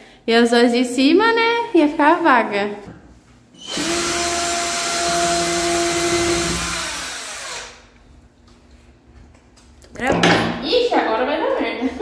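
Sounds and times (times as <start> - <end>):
cordless drill whining: 3.6 - 7.9.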